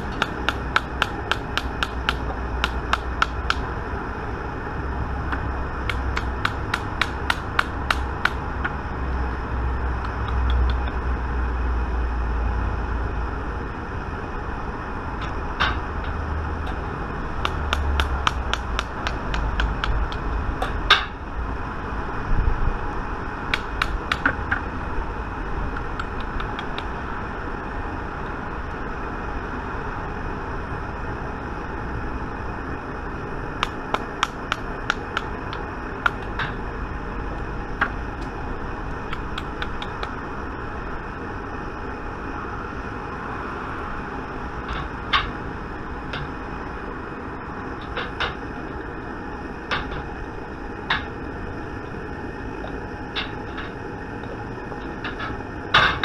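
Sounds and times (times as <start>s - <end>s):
metallic clicks and taps: 10.0s - 11.0s, 17.4s - 21.0s.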